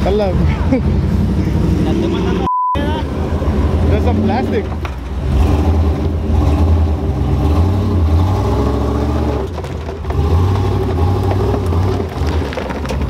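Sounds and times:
truck engine running under load: 0:03.0 - 0:13.0.

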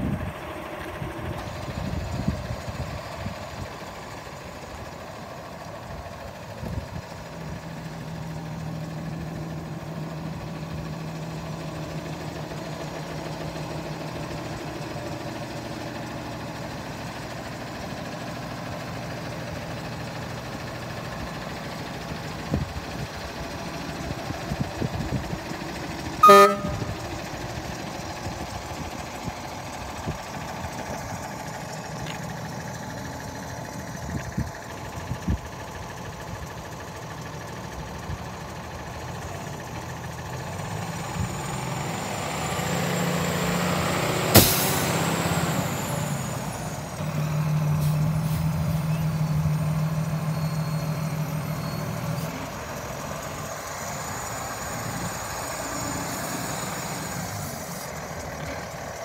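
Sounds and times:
truck diesel engine idling: 0:00.0 - 0:59.0
truck horn toot: 0:26.2 - 0:27.1.

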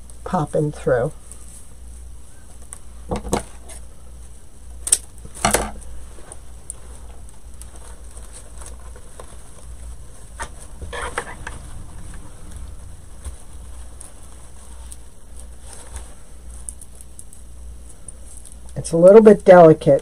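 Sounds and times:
artificial greenery rustling: 0:00.0 - 0:20.0
low steady hum: 0:00.0 - 0:20.0
scrape: 0:10.4 - 0:11.8.

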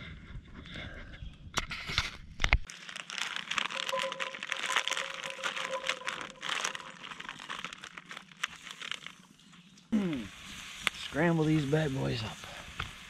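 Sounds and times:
plastic pouch crinkling: 0:02.6 - 0:09.4.

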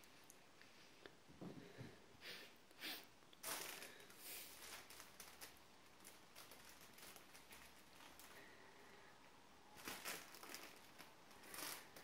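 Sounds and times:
soft rustles: 0:03.4 - 0:08.6, 0:09.7 - 0:12.0.

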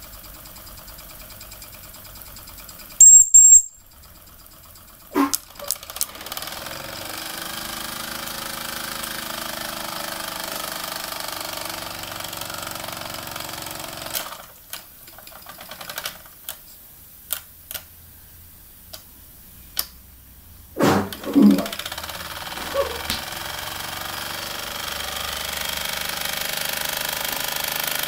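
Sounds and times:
toy steam engine chuffing: 0:00.0 - 0:09.9.

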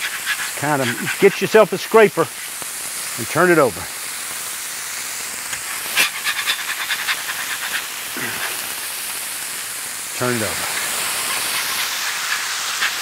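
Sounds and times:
metal scraper scraping a griddle: 0:00.0 - 0:01.6, 0:05.8 - 0:08.4, 0:11.2 - 0:13.0
burgers sizzling on a griddle: 0:00.0 - 0:13.0.

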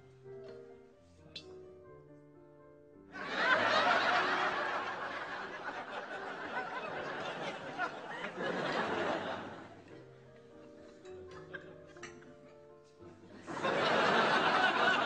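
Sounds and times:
audience laughing: 0:03.2 - 0:10.0, 0:13.3 - 0:15.0.

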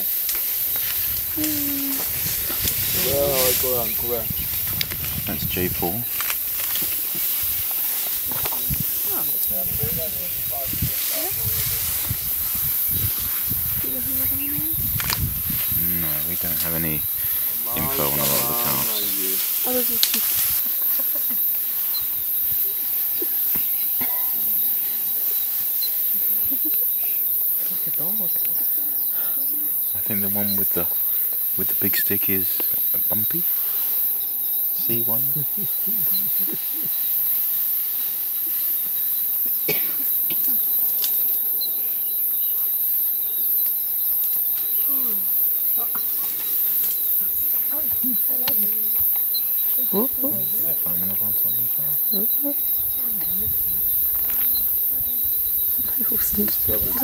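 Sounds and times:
high-pitched insect chorus: 0:00.0 - 0:57.0.

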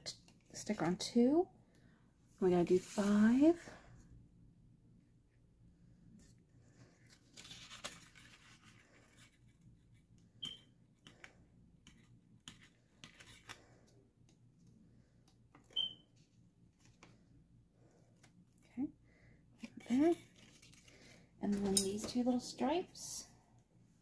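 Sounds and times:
paper rustling: 0:06.8 - 0:09.6.

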